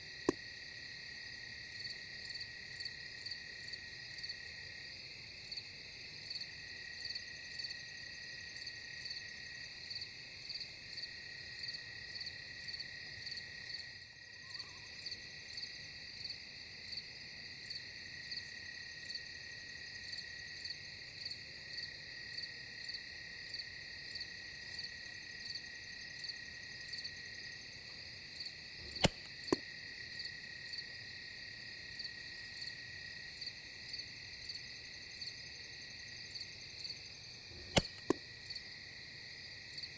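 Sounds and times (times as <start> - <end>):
night insects chirping: 0.0 - 39.9
sharp clicks: 37.6 - 38.2.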